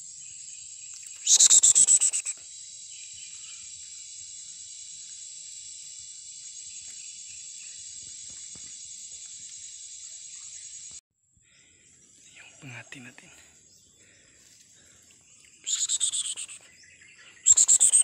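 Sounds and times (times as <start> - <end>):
rapid sharp chirping calls: 0.0 - 10.9, 15.4 - 18.0
high-pitched insect drone: 0.0 - 11.0, 14.4 - 18.0.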